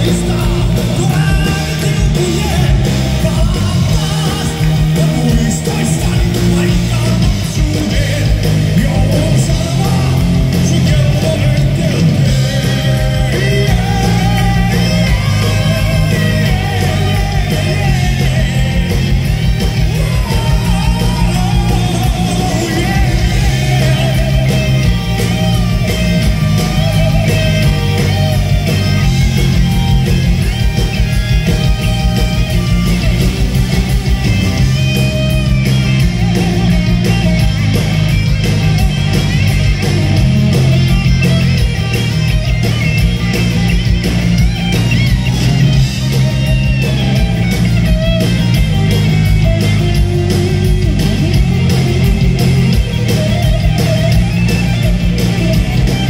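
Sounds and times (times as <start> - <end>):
person singing: 0.0 - 25.7
distorted electric guitars: 0.0 - 56.0
live heavy metal band: 0.0 - 56.0.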